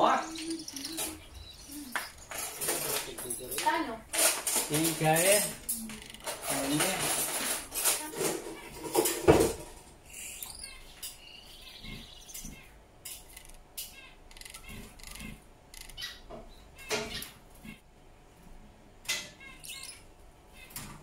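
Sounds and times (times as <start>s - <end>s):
finch chirping: 0.0s - 3.8s, 10.0s - 17.8s, 19.3s - 20.8s
clatter with loud knock: 6.2s - 9.8s.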